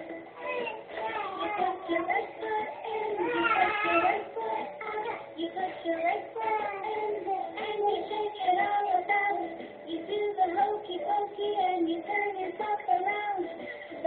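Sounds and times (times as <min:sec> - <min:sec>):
child singing over music: 0:00.4 - 0:14.0.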